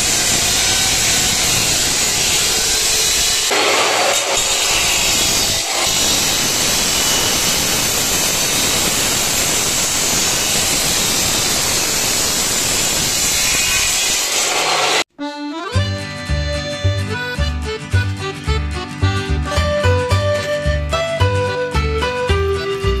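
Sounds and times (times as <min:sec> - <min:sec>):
power tool on sheet metal: 0:00.0 - 0:15.1
music: 0:15.1 - 0:23.0.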